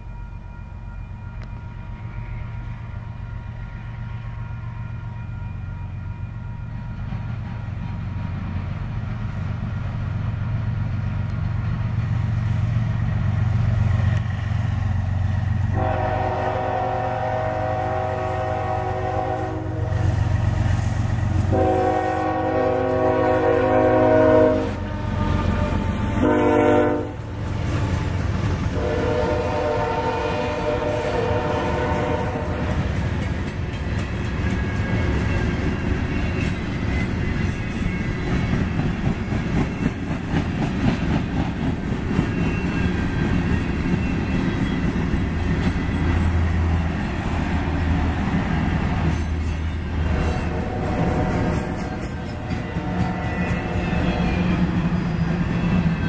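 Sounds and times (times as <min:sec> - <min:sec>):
diesel locomotives rumbling: 0:00.0 - 0:56.0
locomotive air horn blasts: 0:15.7 - 0:20.2, 0:21.4 - 0:27.2, 0:28.7 - 0:32.8, 0:50.1 - 0:52.0
freight cars rolling on rails: 0:27.2 - 0:56.0.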